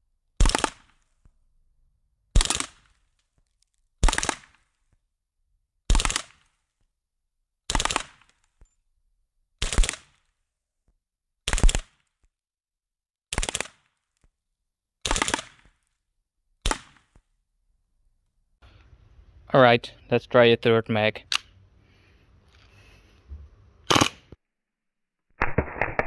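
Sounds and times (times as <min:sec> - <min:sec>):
airsoft pistol firing bursts: 0:00.4 - 0:00.8, 0:02.4 - 0:02.8, 0:15.0 - 0:15.6.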